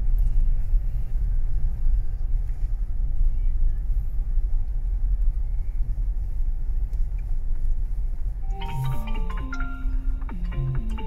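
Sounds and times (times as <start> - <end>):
car driving slowly: 0.0 - 11.0
background music: 8.4 - 11.0.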